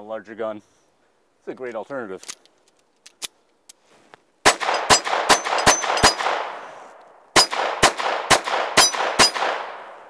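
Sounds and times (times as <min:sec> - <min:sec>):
pistol shots with metallic ring: 0:04.5 - 0:06.6, 0:07.4 - 0:09.9.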